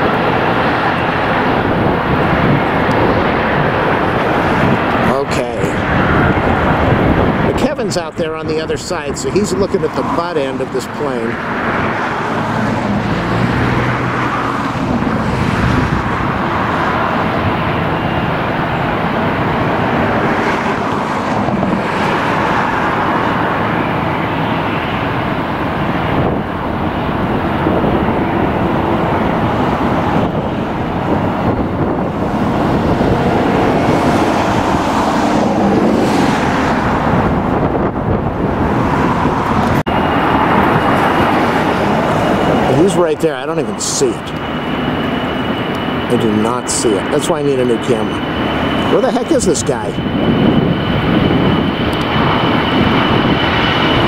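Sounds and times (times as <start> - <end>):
loud traffic roar: 0.0 - 54.0.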